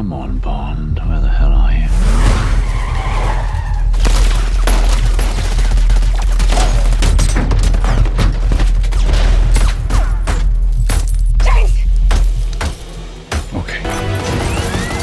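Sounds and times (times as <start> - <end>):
car tyres skidding: 2.0 - 4.0.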